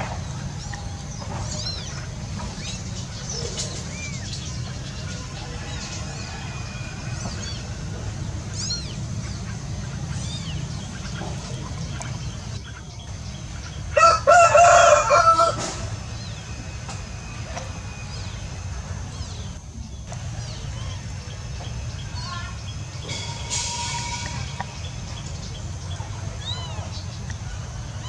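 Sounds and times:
steady low rumble: 0.0 - 14.3
small birds chirping: 0.0 - 15.2, 15.9 - 28.0
rooster crowing: 5.8 - 7.5, 14.0 - 15.9.

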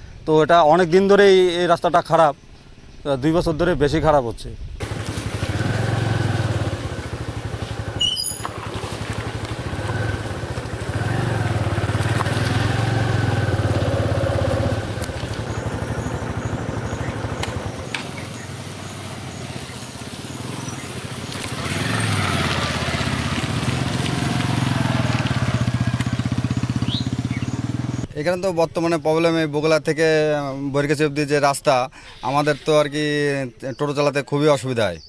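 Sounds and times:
vehicle engine humming: 4.8 - 28.1
high chirps: 7.9 - 8.6.

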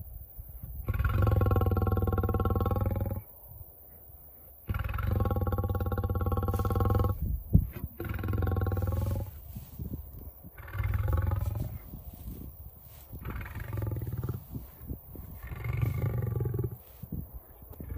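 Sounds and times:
lion roaring: 4.7 - 7.2, 7.8 - 9.4, 10.6 - 11.8, 13.2 - 14.5, 15.4 - 16.8.

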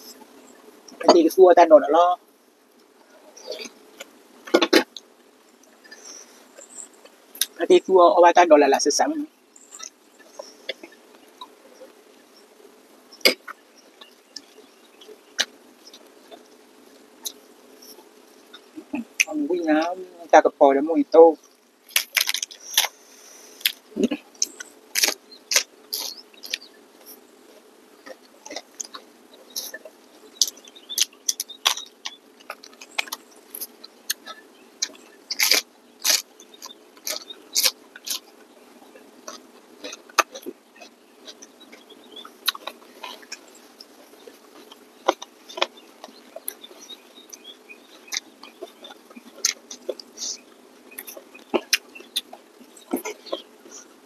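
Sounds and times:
chewing and mouth smacks: 9.7 - 12.0, 21.9 - 23.0, 23.6 - 53.9.

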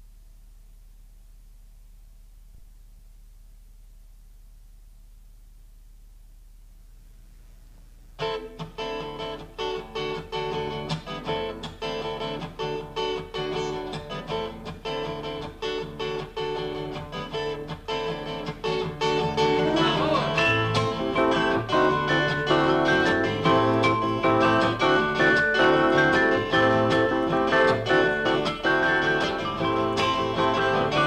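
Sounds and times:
low steady hum: 0.0 - 10.0
acoustic guitar strumming: 8.2 - 31.0
band music: 19.0 - 31.0.

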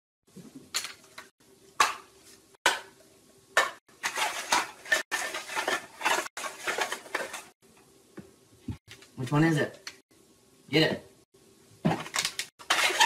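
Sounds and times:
cups clattering and scraping: 3.6 - 7.6, 11.9 - 13.0.

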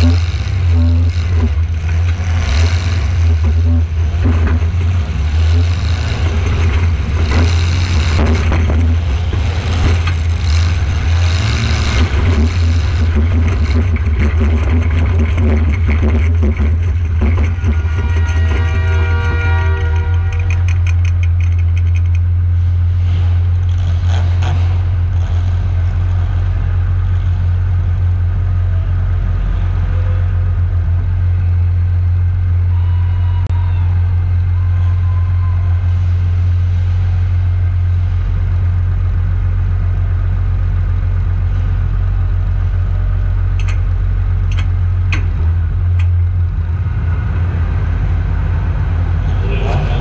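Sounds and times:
truck engine idling: 0.0 - 50.0
sharp clicks: 19.8 - 22.3, 43.6 - 43.9, 44.5 - 45.3.

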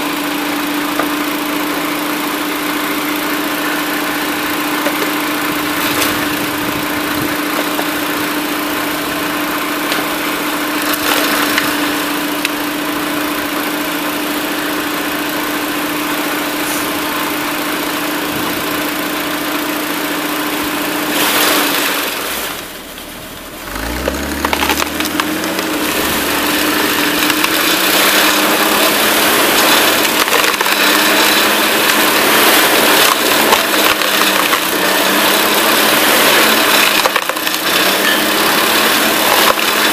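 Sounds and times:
wood splitter engine running: 0.0 - 39.9
wood cracking and splintering: 3.2 - 13.4, 21.0 - 39.9.

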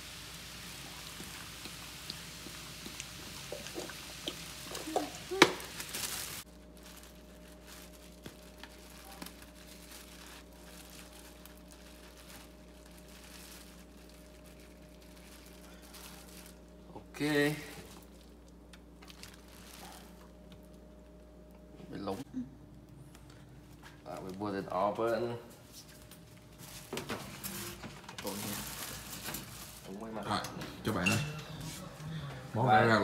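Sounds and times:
faint steady hum: 0.0 - 33.0
soda glugging from bottle: 3.0 - 5.1
plastic bag rustling: 3.8 - 21.1, 25.6 - 30.1.

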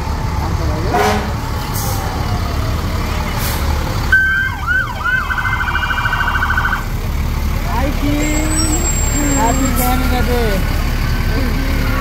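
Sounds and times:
emergency vehicle siren: 0.0 - 7.0, 8.0 - 12.0
low rumble of vehicles: 0.0 - 12.0.

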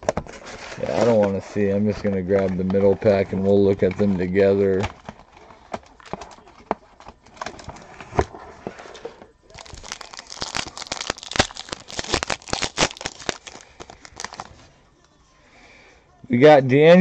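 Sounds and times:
foil card pack crinkling: 9.5 - 14.6.

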